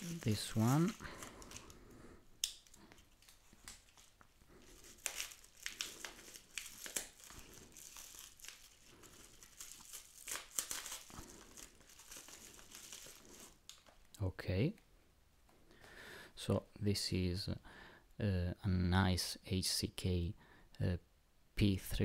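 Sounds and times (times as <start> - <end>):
paper crinkling and tearing: 0.0 - 1.8, 2.5 - 14.1.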